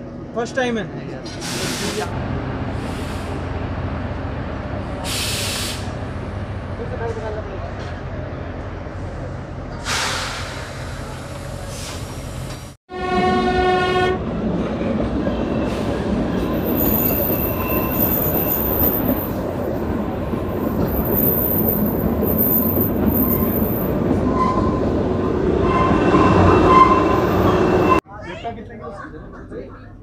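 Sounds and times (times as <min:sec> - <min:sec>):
train running on track: 0:00.0 - 0:28.0
train horn: 0:12.9 - 0:14.3
wheel squeal: 0:16.5 - 0:19.4, 0:20.8 - 0:25.0, 0:25.6 - 0:28.0.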